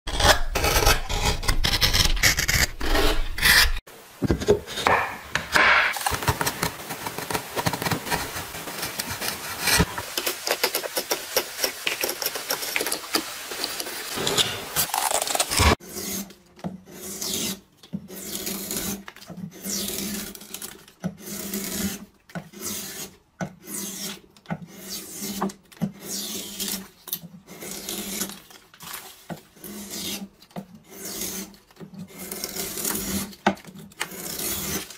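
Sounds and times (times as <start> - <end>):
chisel shaving wood: 0.1 - 3.9, 4.8 - 28.4, 29.5 - 34.9
gouge carving wood strokes: 0.1 - 20.2, 21.0 - 28.3.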